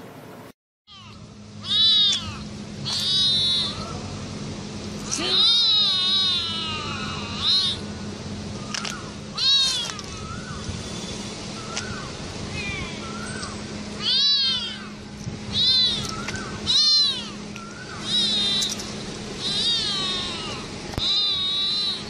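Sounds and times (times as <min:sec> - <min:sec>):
kitten meowing: 0:00.9 - 0:04.0, 0:05.1 - 0:07.8, 0:08.8 - 0:10.4, 0:14.0 - 0:22.0.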